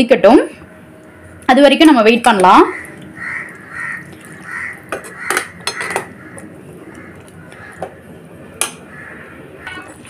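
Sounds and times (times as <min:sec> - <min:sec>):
metal spoon clinking on pot: 0:04.9 - 0:06.1.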